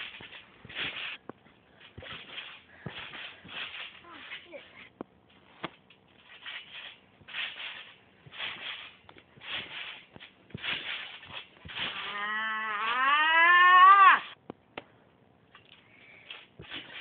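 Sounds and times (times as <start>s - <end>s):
trampoline springs creaking: 0.0s - 14.4s, 15.5s - 17.0s.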